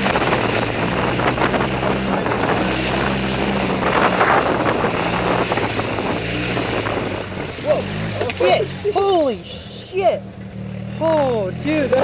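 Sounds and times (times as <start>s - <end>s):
wind buffeting microphone: 0.0s - 9.2s
golf cart engine running: 0.0s - 12.0s.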